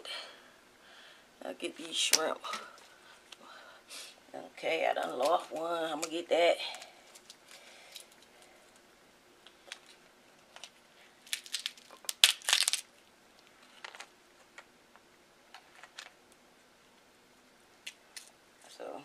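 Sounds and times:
crab shells cracking: 0:05.3 - 0:08.3, 0:09.4 - 0:13.0.

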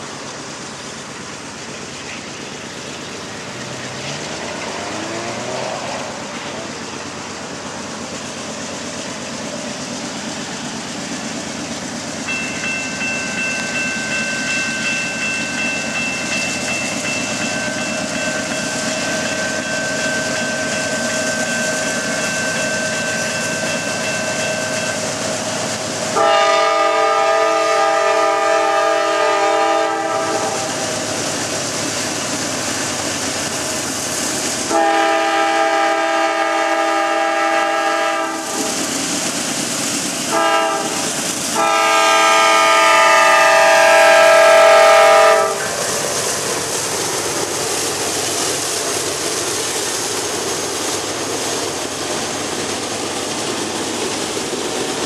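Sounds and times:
diesel locomotive engine with whine: 0:00.0 - 0:55.0
locomotive air horn blasts: 0:26.1 - 0:30.7, 0:34.7 - 0:38.8, 0:40.3 - 0:45.7.

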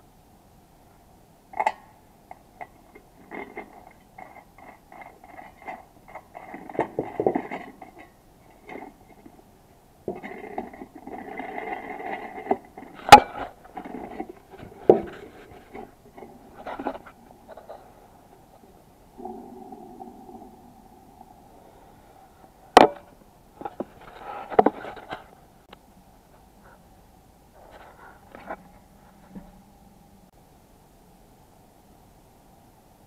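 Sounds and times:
metal scraping and clinking: 0:02.6 - 0:25.3.

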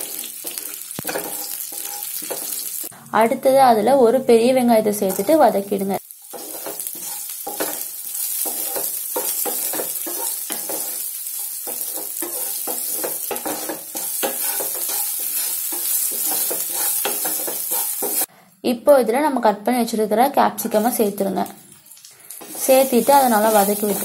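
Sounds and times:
spatula scraping and knocking pan: 0:00.0 - 0:02.9, 0:06.2 - 0:18.3
onions sizzling in hot oil: 0:00.0 - 0:03.0, 0:05.0 - 0:18.3, 0:20.6 - 0:24.0.

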